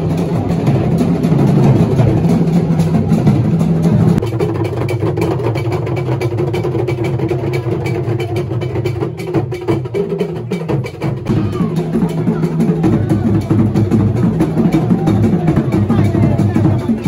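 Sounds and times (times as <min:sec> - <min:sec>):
drums with quick knocking beat: 0:00.0 - 0:17.0
crowd voices: 0:10.4 - 0:17.0.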